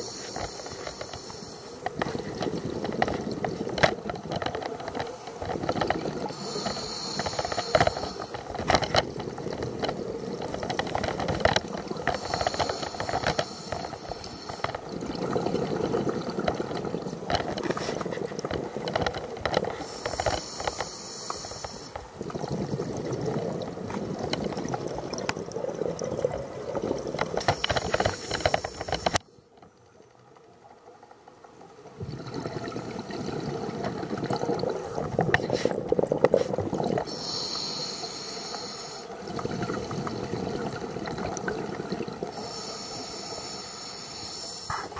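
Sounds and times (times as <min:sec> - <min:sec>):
regulator inhale hissing: 0:00.0 - 0:01.9, 0:06.3 - 0:08.5, 0:12.1 - 0:14.8, 0:19.7 - 0:22.0, 0:27.4 - 0:29.2, 0:37.1 - 0:39.1, 0:42.3 - 0:44.9
bubbling exhales: 0:05.4 - 0:29.2, 0:32.0 - 0:44.9.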